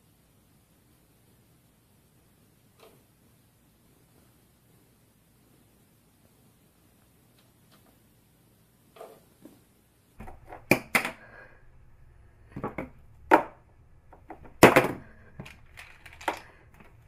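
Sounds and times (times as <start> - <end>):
small objects knocking on hard surface: 12.5 - 17.0.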